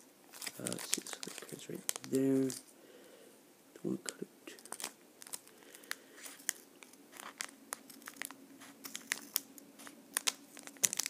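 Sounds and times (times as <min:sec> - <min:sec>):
foil crinkling: 0:00.3 - 0:02.6, 0:04.6 - 0:11.0.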